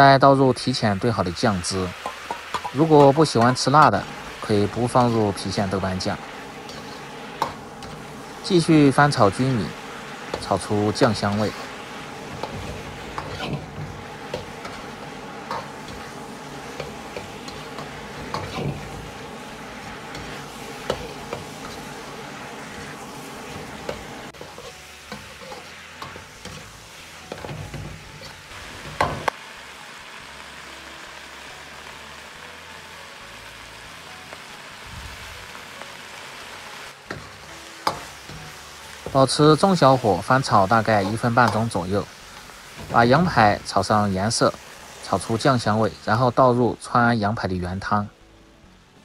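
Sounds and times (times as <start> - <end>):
meat sizzling in a wok: 0.0 - 49.0
metal ladle scraping a wok: 2.0 - 8.5, 9.8 - 28.5.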